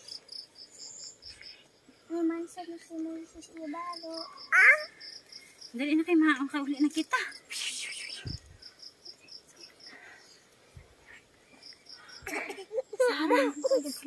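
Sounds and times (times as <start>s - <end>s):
insects chirping: 0.0s - 14.0s
young voice: 2.2s - 5.0s.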